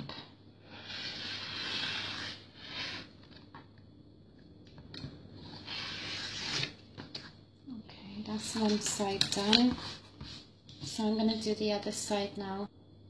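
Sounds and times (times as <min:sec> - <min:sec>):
fabric and ruler scraping on mat: 0:00.7 - 0:03.4, 0:05.4 - 0:06.8.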